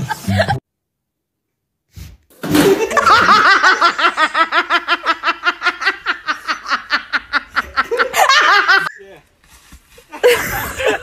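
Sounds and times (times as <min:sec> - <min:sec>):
person laughing hard: 0:02.6 - 0:09.0, 0:10.1 - 0:11.0.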